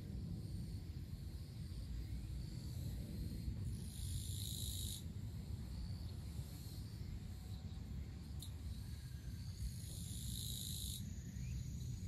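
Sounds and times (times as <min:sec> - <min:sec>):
faint short insect calls: 0:00.0 - 0:12.0
buzzing insect trill: 0:03.9 - 0:05.0, 0:08.4 - 0:12.0.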